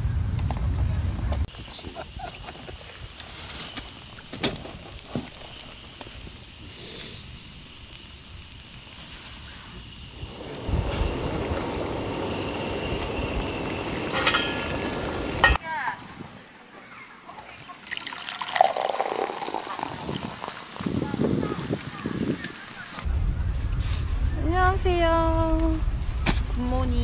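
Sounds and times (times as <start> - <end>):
steady hiss: 1.4 - 15.6, 17.6 - 27.0
food sizzling in a frying pan: 1.5 - 15.6, 17.7 - 23.0.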